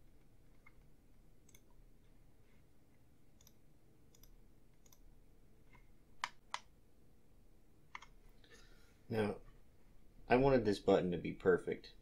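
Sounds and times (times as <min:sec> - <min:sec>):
faint room hum: 0:00.0 - 0:12.0
computer mouse clicking: 0:00.2 - 0:01.7, 0:03.4 - 0:05.1, 0:05.7 - 0:06.7, 0:07.9 - 0:08.2.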